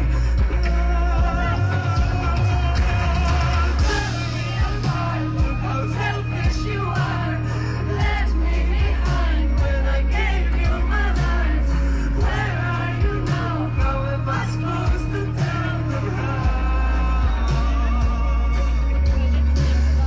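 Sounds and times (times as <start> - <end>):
booming bass: 0.0 - 20.0
live band music: 0.0 - 20.0
man singing: 0.0 - 20.0.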